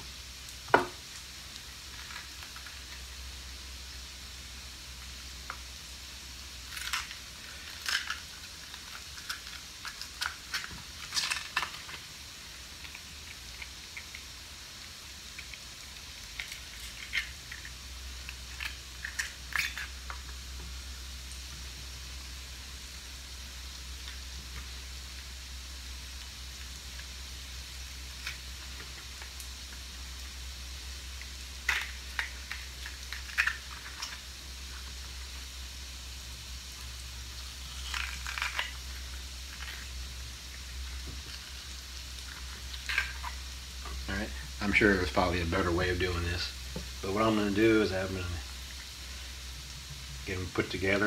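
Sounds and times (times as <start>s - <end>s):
vegetables sizzling in a skillet: 0.0s - 51.0s
crisp clicks and snaps: 6.6s - 12.1s, 12.8s - 20.4s, 31.1s - 35.5s, 36.8s - 44.0s.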